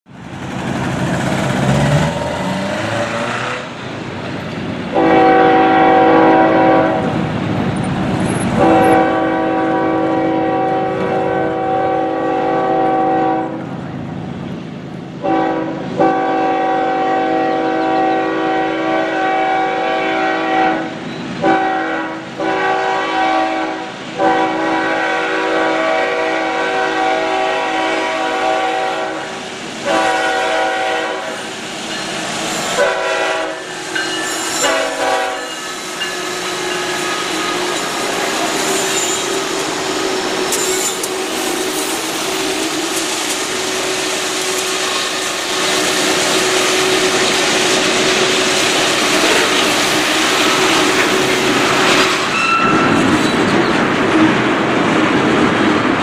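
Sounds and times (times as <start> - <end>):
train running noise: 0.1 - 56.0
locomotive air horn blasts: 4.9 - 7.2, 8.6 - 13.6, 15.2 - 31.4, 32.7 - 39.3, 49.0 - 53.0.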